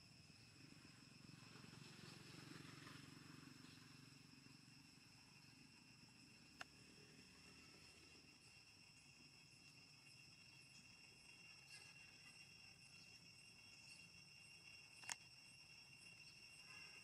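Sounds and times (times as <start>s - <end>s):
sharp click: 15.0s - 15.2s.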